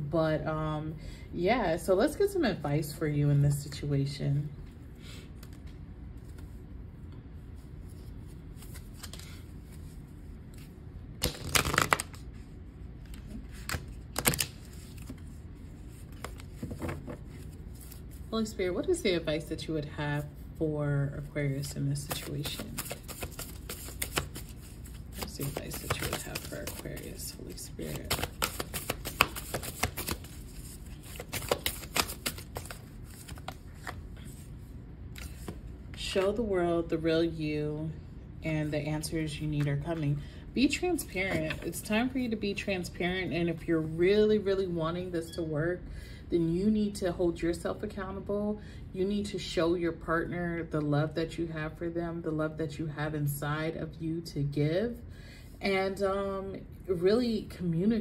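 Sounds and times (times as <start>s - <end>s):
faint steady hum: 0.0s - 58.0s
cards being shuffled: 5.4s - 6.6s, 7.9s - 18.3s, 22.0s - 34.5s, 35.1s - 36.3s.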